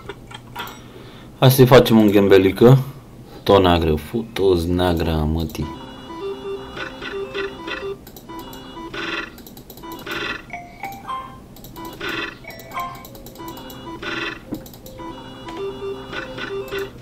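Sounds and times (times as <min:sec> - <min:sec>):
slot machine chiming: 0:05.7 - 0:17.0.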